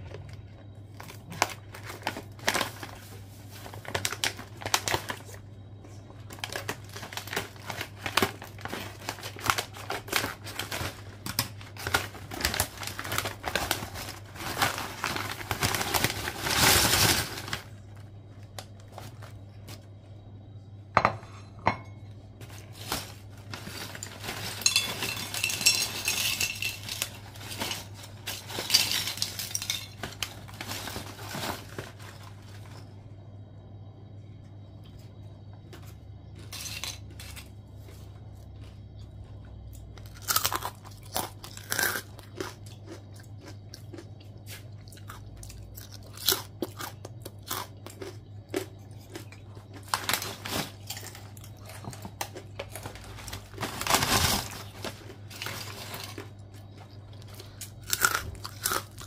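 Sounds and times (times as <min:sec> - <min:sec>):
foil bag crinkling: 0:00.8 - 0:05.5, 0:06.2 - 0:19.9, 0:22.4 - 0:33.0, 0:47.1 - 0:59.0
chips clinking onto ceramic plate: 0:23.6 - 0:30.9, 0:36.4 - 0:37.5.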